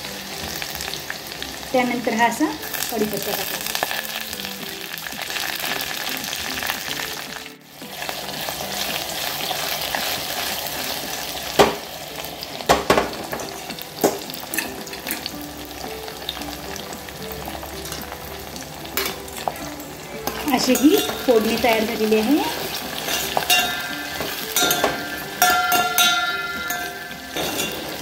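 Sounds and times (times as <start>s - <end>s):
garlic sizzling in hot oil: 0.0s - 28.0s
spatula knocking against pot: 23.0s - 28.0s.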